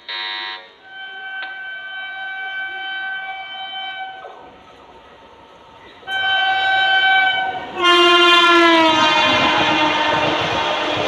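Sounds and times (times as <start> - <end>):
train horn blasts: 0.0 - 4.4, 6.0 - 11.0
train rumbling on rails: 0.7 - 11.0.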